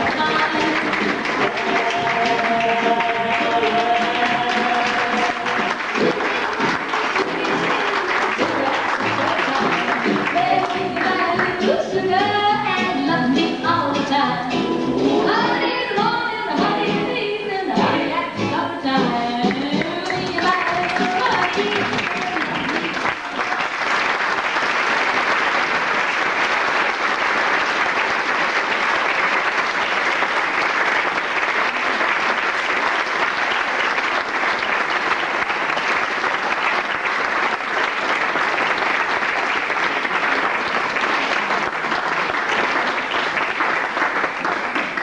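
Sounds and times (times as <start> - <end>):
audience applauding: 0.0 - 11.9, 19.5 - 45.0.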